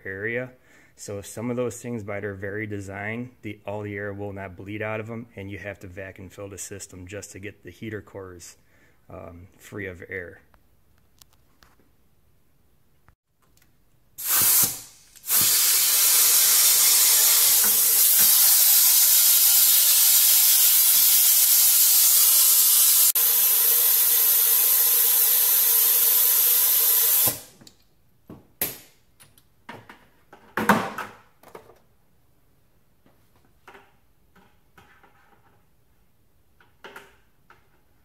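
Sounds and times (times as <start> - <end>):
compressed air hissing: 14.2 - 27.6
short air blast: 14.2 - 27.6.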